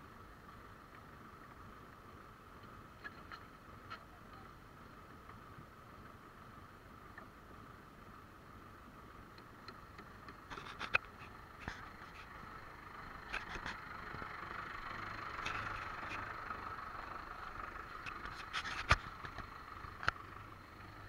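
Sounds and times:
muffled tractor engine hum: 0:00.0 - 0:21.0
sharp clicks and knocks: 0:09.3 - 0:12.3.

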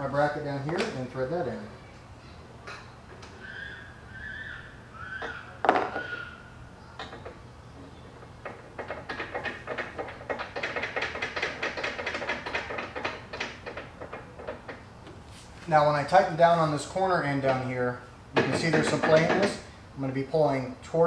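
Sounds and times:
screw driving clicks: 0:08.4 - 0:14.8.

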